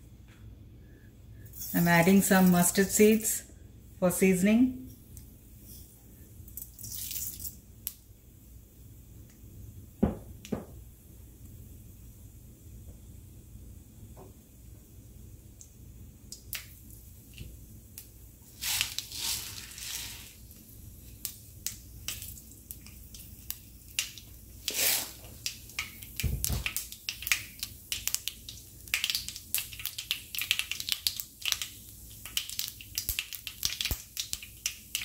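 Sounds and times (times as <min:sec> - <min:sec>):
seeds sizzling and popping in oil: 0:06.4 - 0:08.4, 0:15.4 - 0:35.0.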